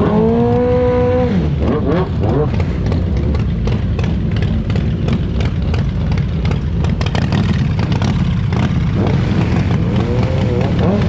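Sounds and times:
mini bike engine running: 0.0s - 11.0s.

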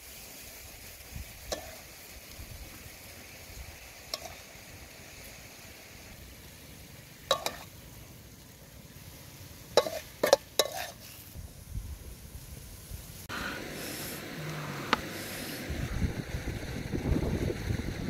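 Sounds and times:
low frying hiss: 0.0s - 18.0s
wooden spatula scraping a wok: 9.7s - 11.4s.

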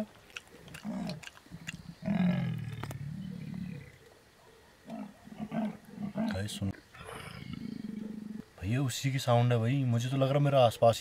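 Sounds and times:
deep rasping animal call: 0.0s - 4.0s, 4.9s - 8.4s.

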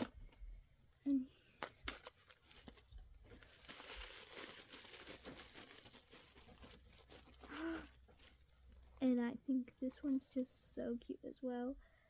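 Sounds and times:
tissue paper crinkling and tearing: 1.8s - 9.2s.

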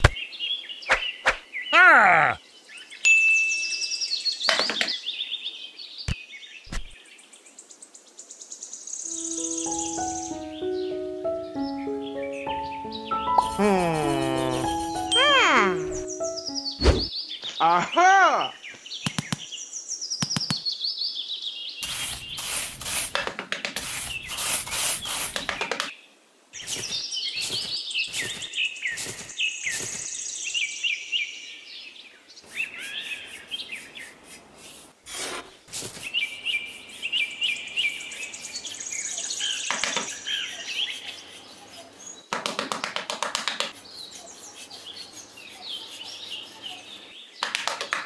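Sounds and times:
small birds chirping: 0.0s - 48.0s
trowel scraping damp sand: 21.8s - 25.7s, 32.5s - 38.6s, 40.1s - 41.9s.

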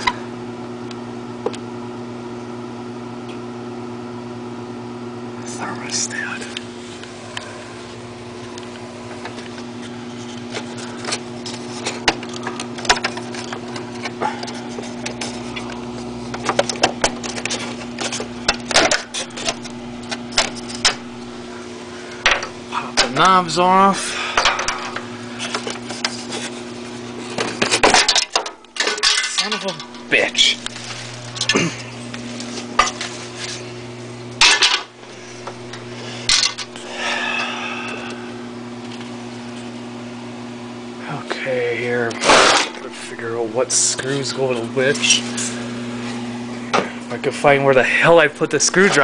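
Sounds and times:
low electrical hum: 0.0s - 49.0s
plastic and metal parts clattering: 10.5s - 14.1s, 27.3s - 31.6s.

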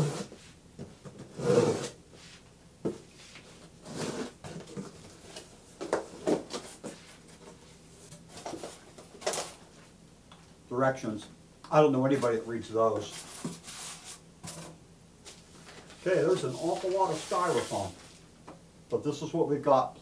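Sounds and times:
styrofoam and papers rustling: 15.3s - 18.2s.

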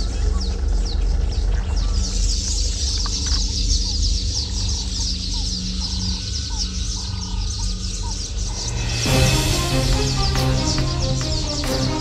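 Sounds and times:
rapid high bird chirps: 0.0s - 12.0s
steady low rumble: 8.2s - 12.0s.

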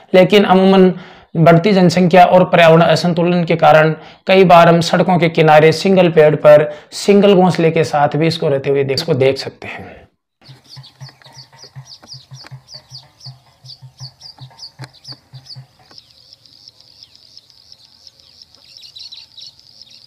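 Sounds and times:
bird singing high chirps: 10.4s - 20.0s.

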